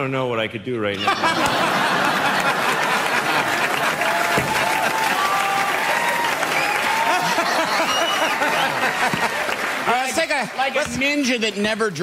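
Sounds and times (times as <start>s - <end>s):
audience applauding: 1.2s - 11.6s.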